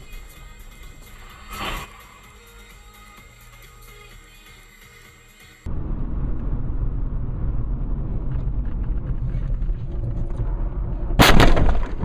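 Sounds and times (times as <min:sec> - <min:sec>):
car driving on road: 0:00.0 - 0:03.2, 0:05.6 - 0:12.0
loud impact: 0:11.1 - 0:12.0.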